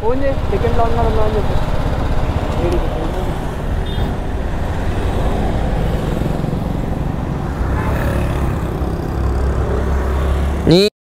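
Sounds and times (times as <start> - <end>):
road traffic passing: 0.0 - 10.9.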